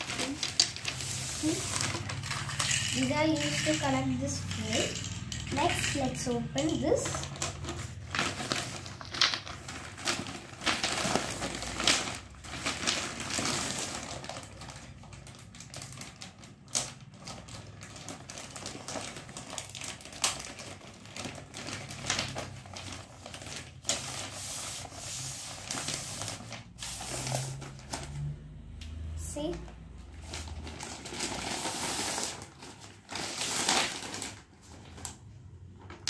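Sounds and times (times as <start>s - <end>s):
plastic wrapping crinkling: 0.0s - 28.3s, 29.4s - 36.0s.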